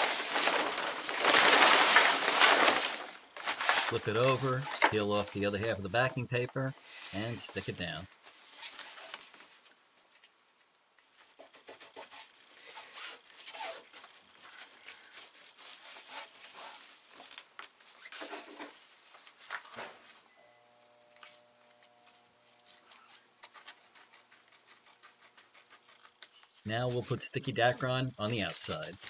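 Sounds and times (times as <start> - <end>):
sailcloth and paper crinkling: 0.0 - 10.3, 11.1 - 20.2, 21.2 - 29.0
faint steady hum: 18.9 - 24.4.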